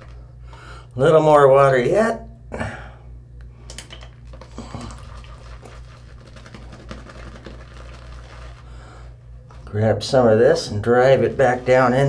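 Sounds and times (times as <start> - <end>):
shaving brush whipping lather: 4.8 - 8.7.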